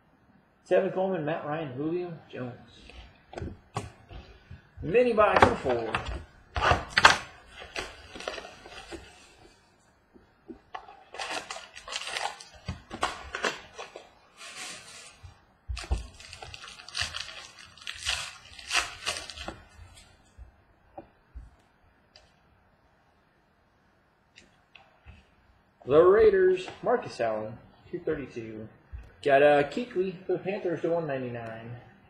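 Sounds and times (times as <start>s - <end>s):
tearing and rustling of cards: 5.2s - 9.4s, 10.8s - 20.1s.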